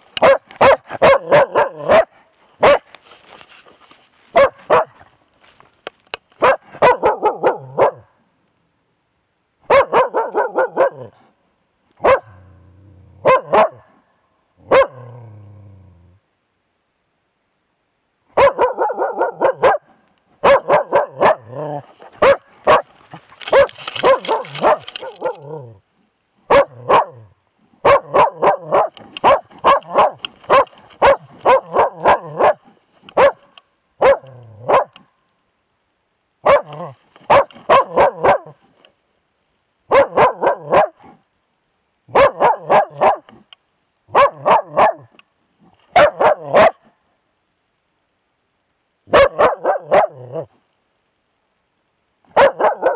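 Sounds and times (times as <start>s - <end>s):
dog barking: 0.2s - 2.9s, 4.3s - 5.1s, 6.4s - 8.2s, 9.6s - 11.3s, 12.0s - 12.5s, 13.2s - 14.0s, 14.6s - 15.1s, 18.3s - 22.9s, 23.5s - 25.8s, 26.5s - 35.0s, 36.4s - 38.6s, 39.9s - 41.2s, 42.1s - 43.4s, 44.1s - 45.1s, 45.9s - 46.9s, 49.1s - 50.5s, 52.3s - 52.9s.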